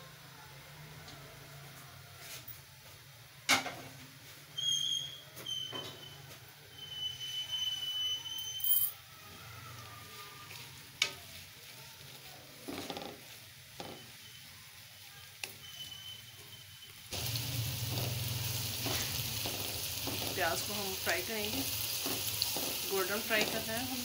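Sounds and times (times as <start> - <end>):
onions sizzling in hot oil: 9.7 - 24.0
spoon scraping and tapping pan: 18.8 - 20.4, 21.4 - 23.7.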